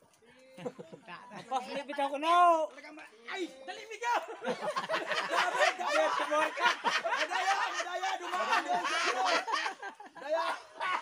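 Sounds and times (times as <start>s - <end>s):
people chattering: 0.0s - 11.0s
laughter: 0.4s - 2.0s, 4.0s - 11.0s.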